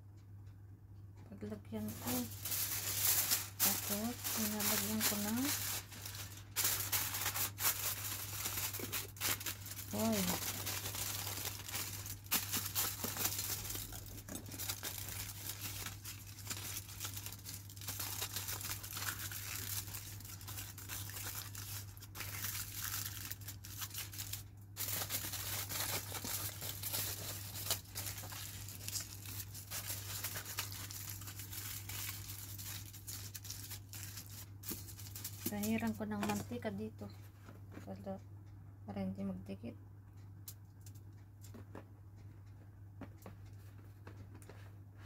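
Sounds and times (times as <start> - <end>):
aluminium foil crinkling: 1.8 - 36.6.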